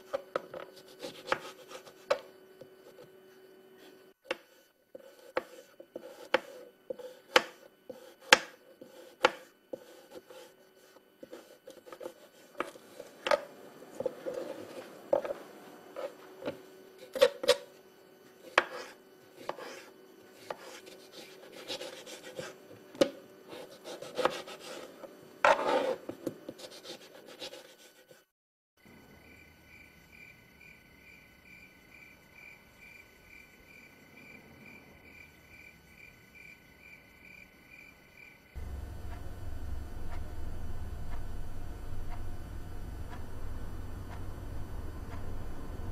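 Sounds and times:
knife scraping board: 0.1 - 2.2, 3.8 - 15.3, 16.0 - 16.3, 17.0 - 17.7, 18.4 - 22.6, 23.5 - 28.2
knife chopping on cutting board: 1.0 - 2.2, 4.3 - 10.4, 20.4 - 24.8.

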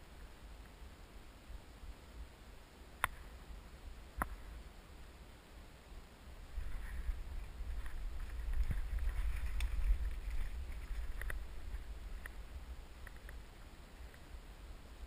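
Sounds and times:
wind rumble on microphone: 6.3 - 15.0
twigs and dry leaves crackling: 6.5 - 14.3.

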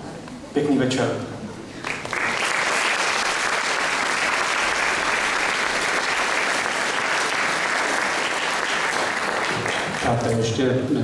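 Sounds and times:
audience applauding: 1.8 - 10.5.

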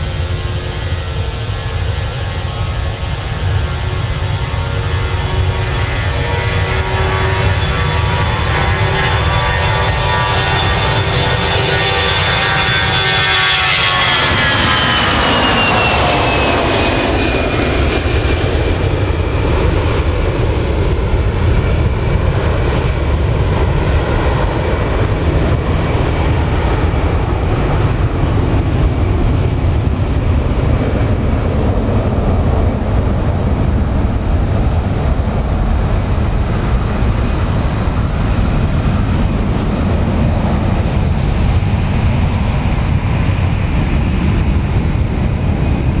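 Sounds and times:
jet airliner taking off: 0.0 - 46.0.

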